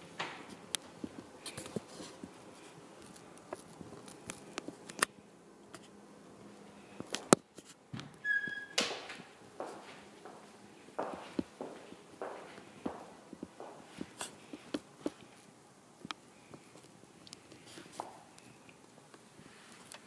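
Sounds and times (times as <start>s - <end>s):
footsteps on tile floor: 0.0s - 4.8s, 7.9s - 15.5s, 17.6s - 18.4s
door opening and shutting: 7.9s - 9.3s
short squeak: 8.2s - 8.8s.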